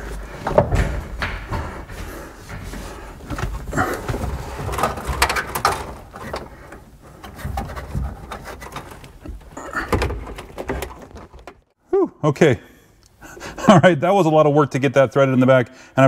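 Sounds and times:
handling rustles and scrapes: 0:02.5 - 0:09.6.

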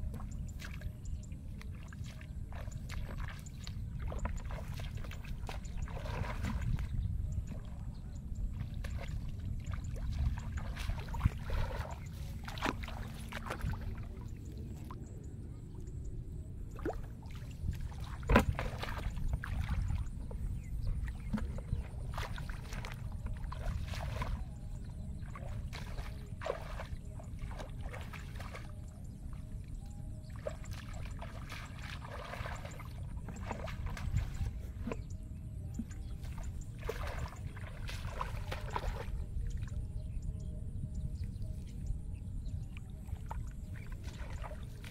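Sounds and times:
person wading through water: 0:00.0 - 0:44.9
steady low rumble: 0:00.0 - 0:44.9
sharp splashes and knocks: 0:10.0 - 0:14.0, 0:16.8 - 0:20.1, 0:30.4 - 0:35.0, 0:35.8 - 0:39.1.

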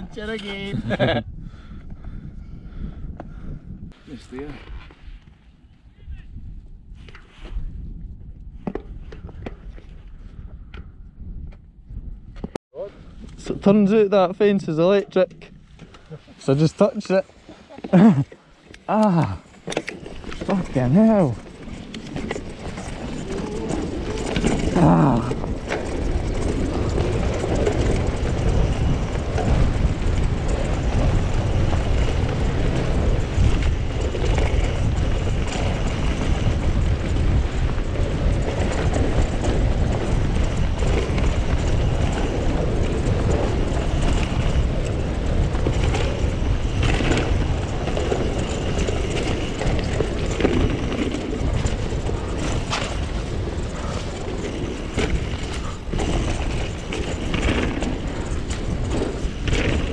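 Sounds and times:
wind buffeting microphone: 0:00.0 - 0:59.9
tyres rumbling over ground: 0:19.0 - 0:59.9
bike rattling and knocking: 0:19.2 - 0:59.9.

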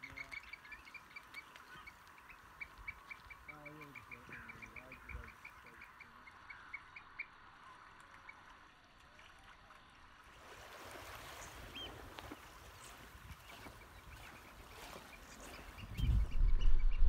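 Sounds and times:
high piping bird calls: 0:00.0 - 0:07.4, 0:11.2 - 0:17.0
hiss of wind or water: 0:10.3 - 0:16.3.

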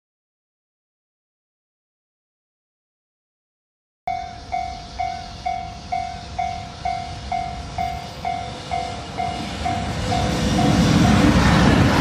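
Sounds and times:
level crossing bell dinging: 0:04.1 - 0:10.8.

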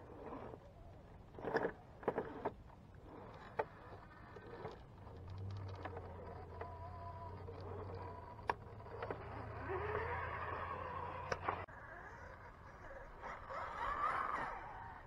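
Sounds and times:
electric motor and gears whine: 0:00.0 - 0:15.0
tyres scraping on rock: 0:01.2 - 0:11.7.

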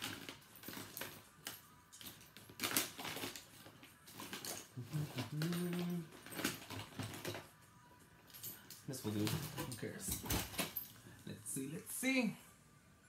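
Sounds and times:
makeup packaging clicking and rustling: 0:00.0 - 0:07.6, 0:08.3 - 0:11.0.

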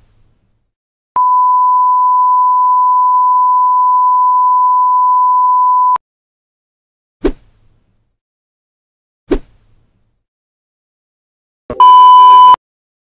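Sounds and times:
steady electronic test tone: 0:01.2 - 0:06.0.

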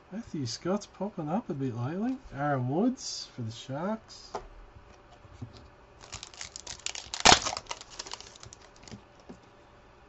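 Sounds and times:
wrapper crinkling: 0:06.0 - 0:09.0.

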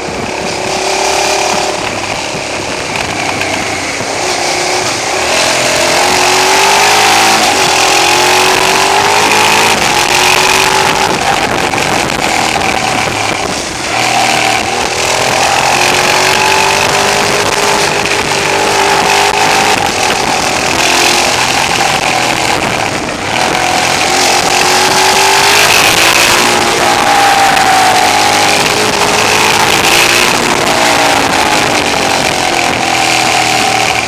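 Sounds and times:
motorcycle engine revving: 0:00.0 - 0:34.0
wind on microphone: 0:00.0 - 0:34.0.

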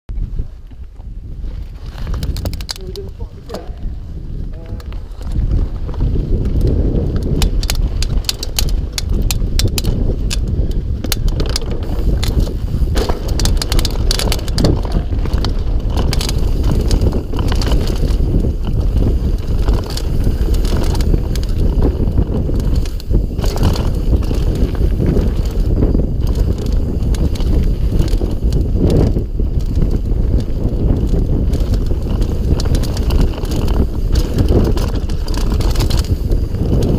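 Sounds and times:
bike clattering and rattling: 0:00.1 - 0:36.9
wind rumble on microphone: 0:00.1 - 0:36.9
tyres crunching over gravel: 0:04.6 - 0:36.9.

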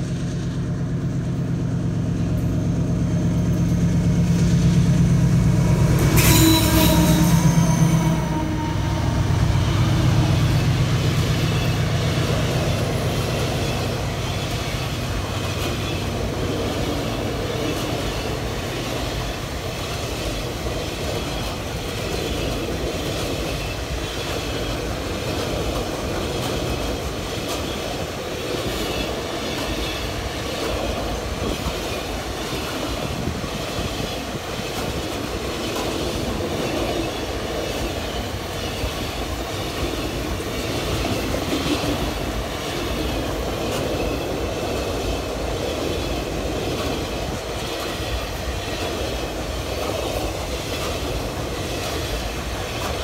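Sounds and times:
steel wheels rumbling on rail: 0:00.0 - 0:53.0
wheels clickety-clack: 0:11.5 - 0:53.0.

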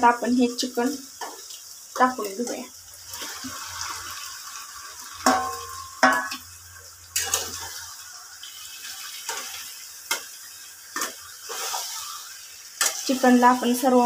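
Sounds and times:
chicken sizzling in a frying pan: 0:00.0 - 0:14.0
spatula knocking and scraping pan: 0:05.2 - 0:06.5, 0:07.2 - 0:07.8
sharp ringing metal clanks: 0:05.3 - 0:06.4.

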